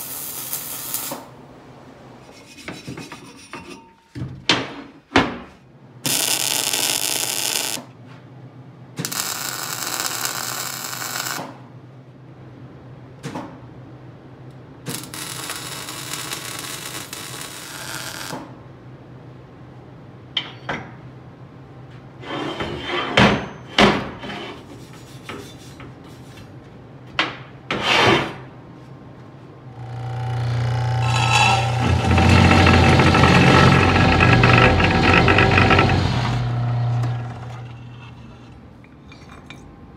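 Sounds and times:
welding hissing bursts: 0.0s - 1.3s, 6.1s - 7.8s, 9.0s - 11.4s, 14.9s - 18.3s
cold saw motor humming: 29.7s - 37.9s.

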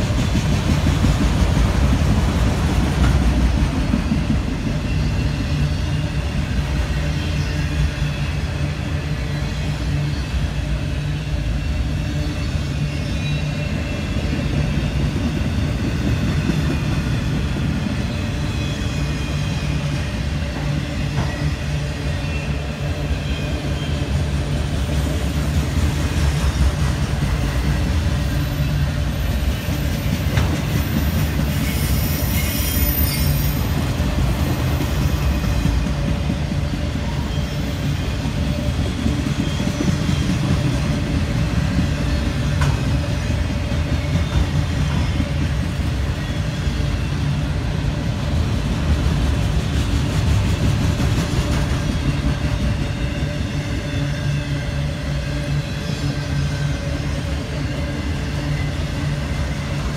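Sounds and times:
train cars rumbling on rails: 0.0s - 59.9s
high-pitched wheel squeal: 31.4s - 33.8s.

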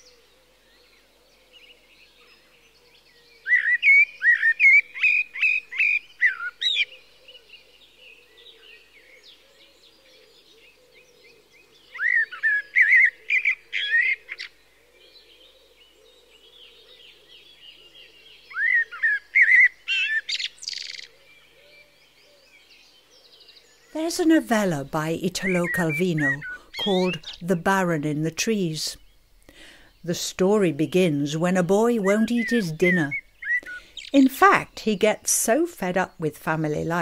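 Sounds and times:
songbirds singing: 0.0s - 37.0s.

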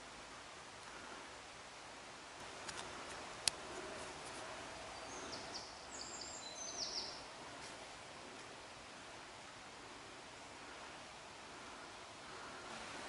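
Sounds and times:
high chirping calls: 5.0s - 7.3s.

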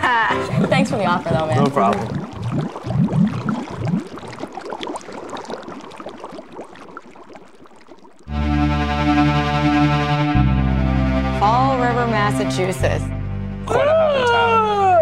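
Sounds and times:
water bubbling and gurgling: 0.3s - 8.4s.

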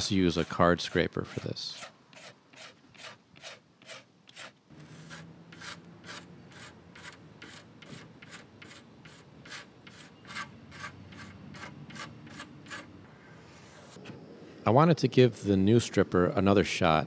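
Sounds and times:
knife blade scraping wood: 0.3s - 12.9s.

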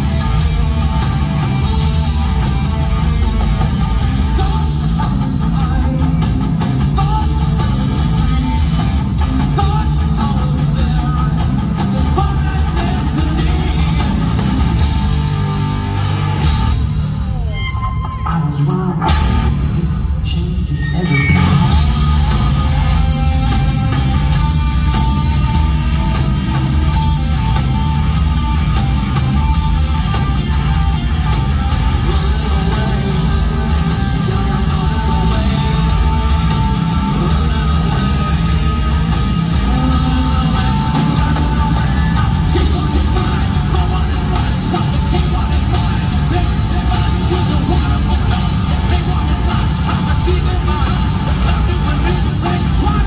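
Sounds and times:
bass guitar: 0.0s - 53.0s
distorted guitar: 0.0s - 53.0s
drum kit with cymbals: 0.0s - 53.0s
person singing: 31.7s - 53.0s.

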